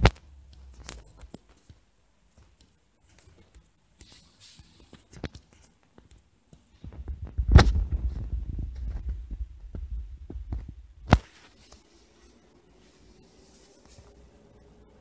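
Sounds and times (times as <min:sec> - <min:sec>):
microphone handling rumble: 0:07.0 - 0:11.1.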